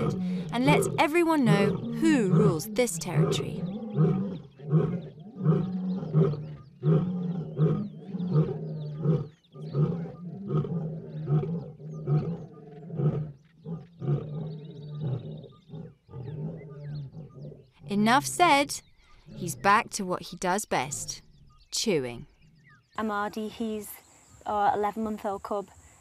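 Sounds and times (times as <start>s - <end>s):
lion grunting: 0.0s - 20.0s.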